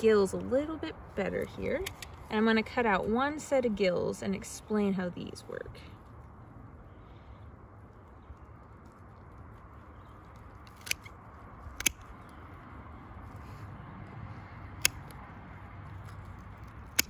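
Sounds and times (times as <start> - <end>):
shears clicking: 0.0 - 4.2, 9.3 - 13.5, 14.1 - 17.0.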